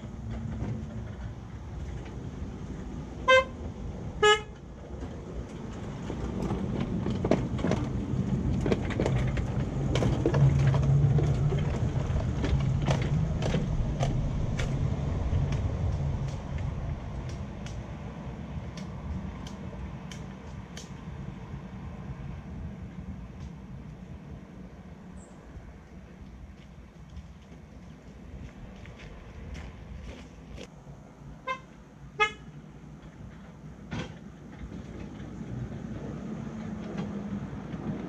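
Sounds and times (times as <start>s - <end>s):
train rumbling on track: 0.0s - 38.0s
locomotive horn toots: 3.2s - 3.6s, 4.2s - 4.6s, 31.4s - 32.5s.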